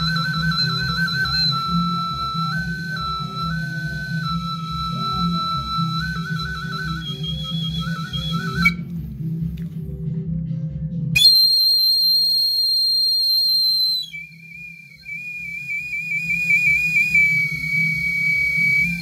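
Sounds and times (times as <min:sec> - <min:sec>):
wooden bird whistle: 0:00.0 - 0:09.0, 0:11.2 - 0:19.0
backing music with steady beat: 0:00.0 - 0:15.1.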